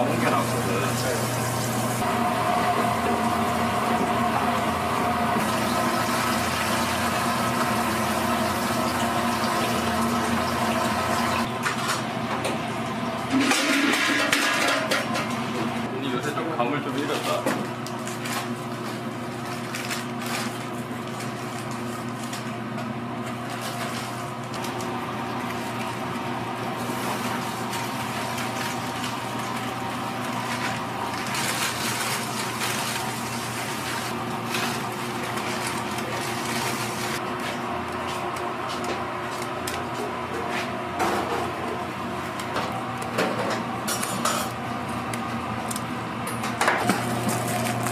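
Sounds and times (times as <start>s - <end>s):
oil sizzling in deep fryer: 0.0s - 11.5s, 23.5s - 37.4s
kitchen equipment hum: 0.0s - 47.9s.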